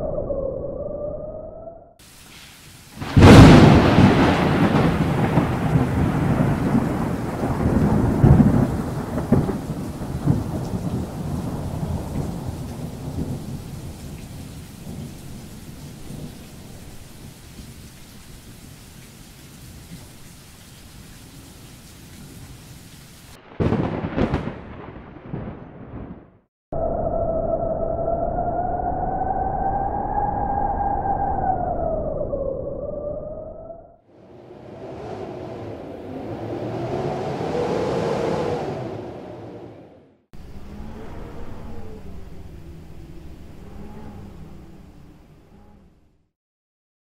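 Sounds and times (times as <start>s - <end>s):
rain hiss: 2.0s - 24.5s, 34.2s - 39.8s, 40.4s - 45.6s
thunderclap: 3.0s - 17.3s, 23.3s - 26.4s, 34.2s - 45.8s
rolling thunder rumble: 3.0s - 17.4s, 23.3s - 33.0s, 34.2s - 46.0s.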